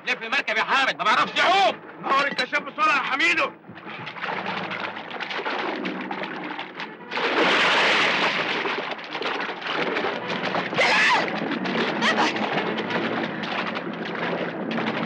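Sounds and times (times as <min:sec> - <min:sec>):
water churning and splashing: 0:00.0 - 0:15.0
person diving into water: 0:03.5 - 0:15.0
woman screaming: 0:10.8 - 0:11.3, 0:12.0 - 0:12.4.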